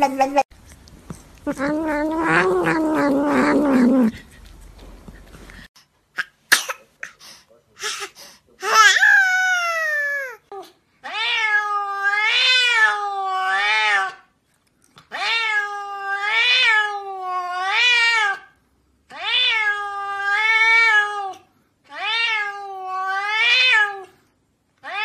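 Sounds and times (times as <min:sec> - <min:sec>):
cat meowing: 0:01.5 - 0:04.1, 0:11.0 - 0:14.2, 0:19.1 - 0:24.1, 0:24.8 - 0:25.0.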